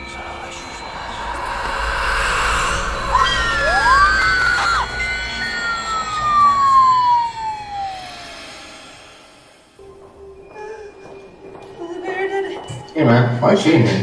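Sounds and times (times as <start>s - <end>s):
siren-like wail: 0.0s - 9.2s.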